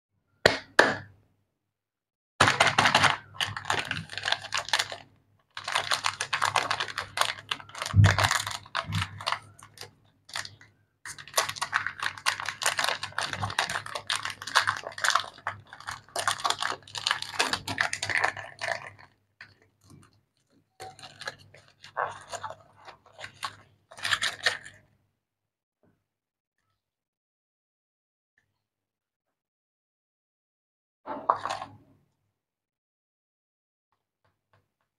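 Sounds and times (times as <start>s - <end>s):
wrappers crinkling and tearing: 2.4s - 20.0s, 20.8s - 24.7s.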